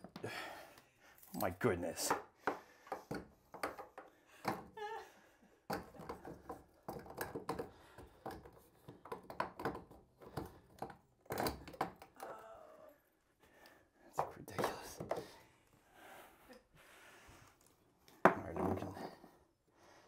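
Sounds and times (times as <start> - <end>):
hard objects knocking and clattering: 2.0 - 4.8, 5.7 - 12.2, 14.1 - 15.4, 18.2 - 19.2.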